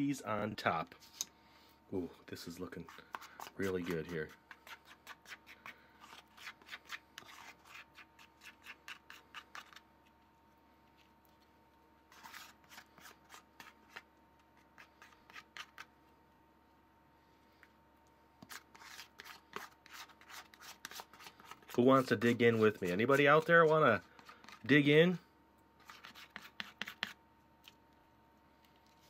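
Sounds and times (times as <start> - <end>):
spatula scraping plastic bowl: 2.6 - 9.8, 12.1 - 15.9.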